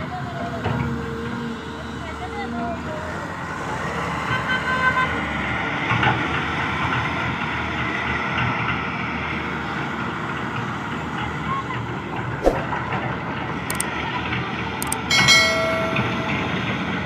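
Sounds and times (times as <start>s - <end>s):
heavy diesel engines running: 0.0s - 12.4s, 13.1s - 17.0s
short high tone: 14.8s - 17.0s.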